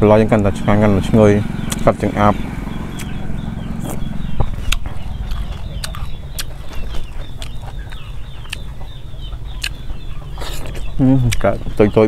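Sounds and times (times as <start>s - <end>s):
low rumble: 0.0s - 8.2s
birds chirping: 0.0s - 12.0s.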